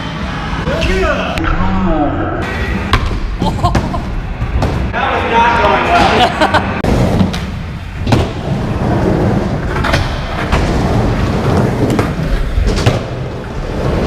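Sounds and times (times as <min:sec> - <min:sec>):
skateboard wheels rumbling: 0:06.8 - 0:14.0.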